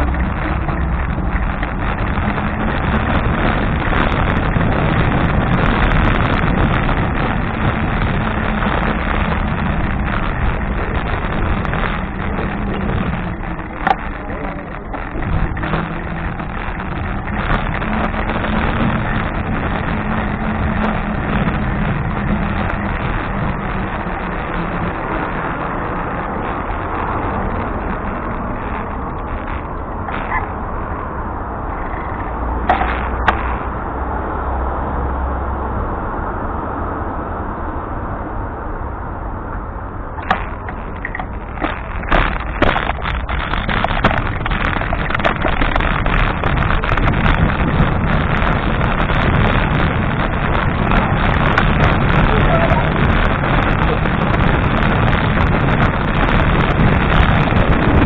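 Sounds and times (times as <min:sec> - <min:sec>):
wind and road noise: 0:00.0 - 0:58.0
sharp clicks and knocks: 0:08.4 - 0:19.2, 0:31.8 - 0:33.7, 0:40.2 - 0:52.3.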